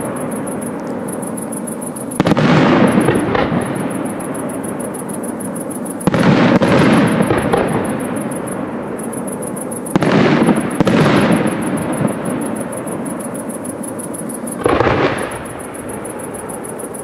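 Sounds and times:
firework shells bursting: 0.0 - 17.0.

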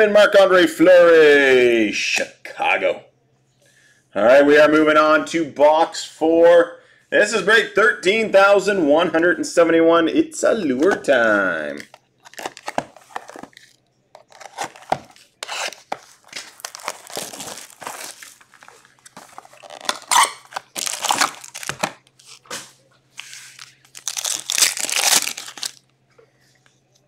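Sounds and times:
foil packs tearing and crinkling: 11.8 - 22.5, 23.2 - 25.8.

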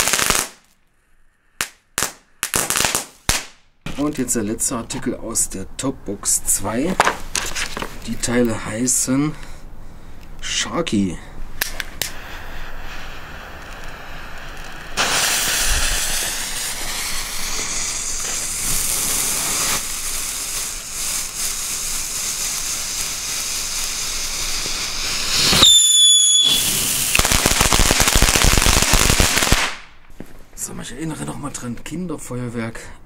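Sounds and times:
firework spraying sparks hissing: 0.0 - 0.6, 11.5 - 29.9
firework crackling: 0.0 - 0.8, 1.6 - 4.3, 11.4 - 30.3
firework high whistle: 12.0 - 29.8.

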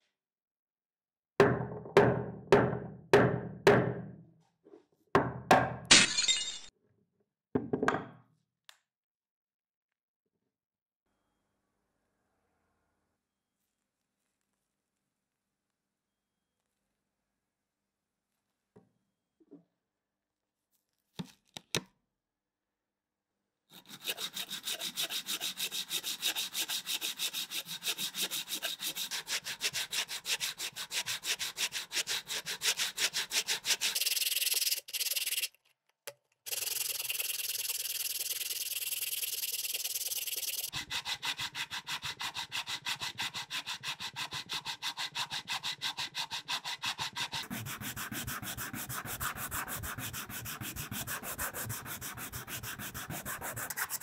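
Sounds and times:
rasping on sandpaper: 23.7 - 35.5, 36.5 - 54.0.

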